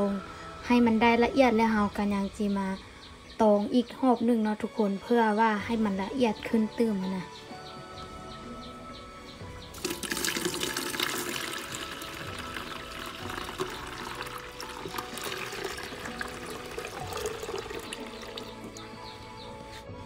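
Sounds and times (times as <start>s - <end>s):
liquid pouring and splashing: 9.8s - 18.8s.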